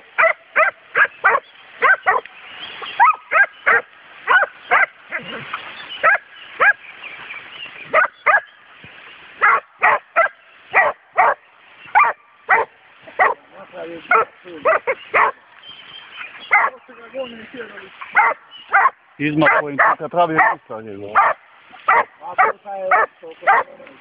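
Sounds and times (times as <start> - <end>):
hounds barking: 0.0 - 5.4, 6.0 - 6.8, 7.9 - 8.5, 9.4 - 15.5, 16.5 - 16.8, 18.0 - 23.8.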